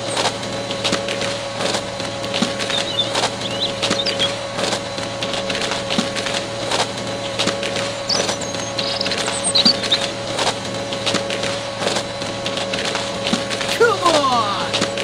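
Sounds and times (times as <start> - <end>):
drill crunching into sand: 0.0 - 15.0
toy motor whining: 8.0 - 10.2.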